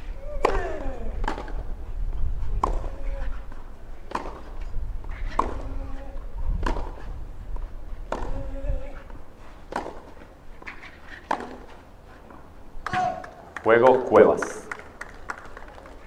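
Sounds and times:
racket striking tennis ball: 0.3 - 1.7, 2.5 - 13.3.

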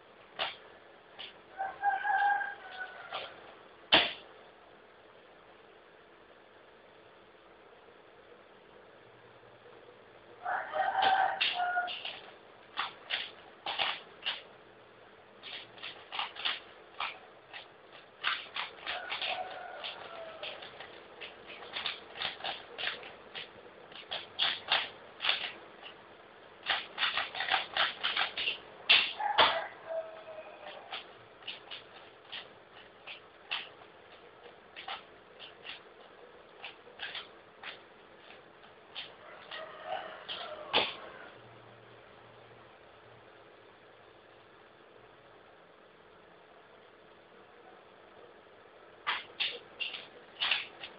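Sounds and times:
puzzle cube clacking: 0.4 - 0.6, 2.1 - 4.2, 10.9 - 14.5, 15.4 - 26.0, 26.6 - 30.0, 30.6 - 41.1, 49.0 - 50.9.

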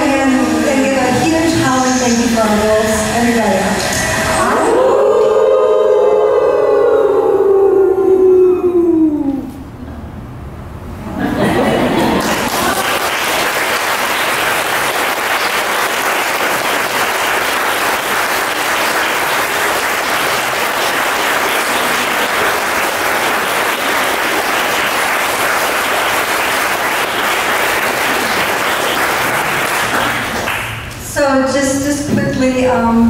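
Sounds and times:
audience applauding: 11.4 - 30.9.

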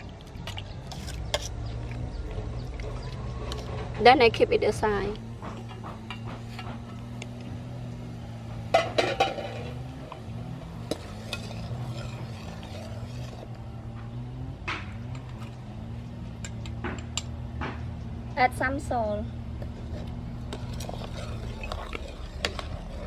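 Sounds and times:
steady low hum: 0.0 - 23.0
lid and ladle clanking on metal pot: 8.7 - 9.9.

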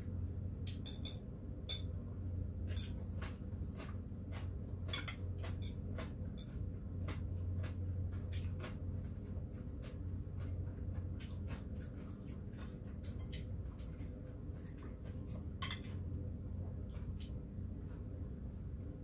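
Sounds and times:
steady low hum: 0.0 - 19.0
chopsticks clicking on plates: 0.6 - 2.0, 2.6 - 16.1
chewing: 2.6 - 18.1.

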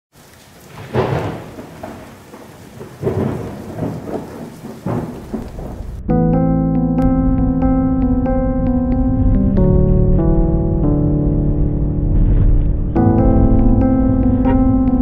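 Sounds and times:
rain hiss: 0.1 - 6.1
thunder rumbling: 0.7 - 15.0
electric piano music: 5.8 - 15.0.

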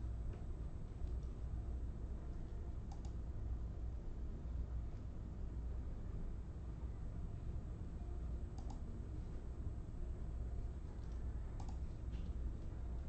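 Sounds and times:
steady low hum: 0.0 - 13.0
light sharp clicks: 2.4 - 3.2, 8.6 - 8.8, 11.0 - 12.4.

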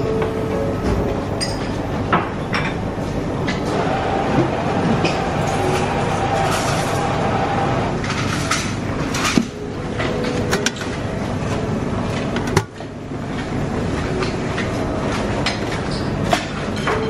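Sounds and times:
buffet room noise: 0.0 - 17.0
metal dishes and utensils clinking: 0.8 - 2.8, 8.0 - 11.0, 14.0 - 17.0.

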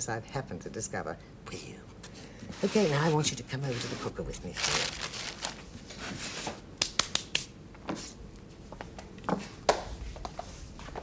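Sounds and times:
footsteps on hard floor: 7.8 - 11.0.

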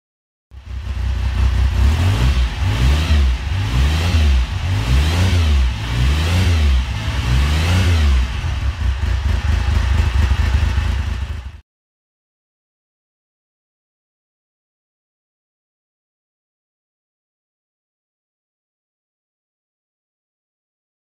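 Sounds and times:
motorcycle engine revving: 0.6 - 11.6.

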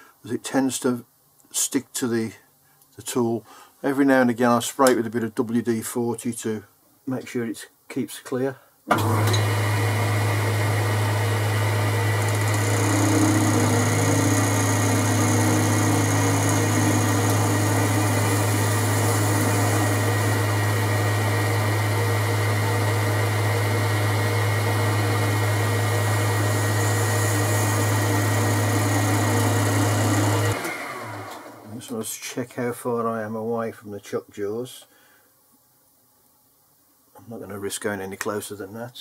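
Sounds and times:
metal lathe motor hum: 9.0 - 31.5.

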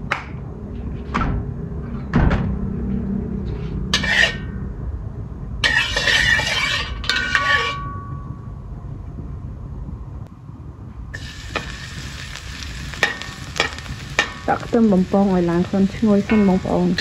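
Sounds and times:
metal ladle scraping wok: 3.9 - 4.5, 5.6 - 7.9, 11.2 - 14.7
garlic sizzling in hot oil: 11.2 - 17.0.

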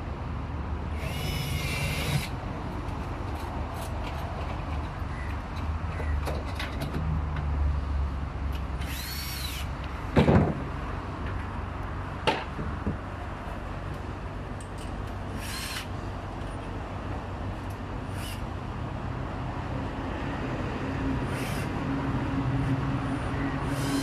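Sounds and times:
power drill whining: 1.0 - 2.3, 8.8 - 9.7, 21.3 - 21.7, 23.7 - 24.0.

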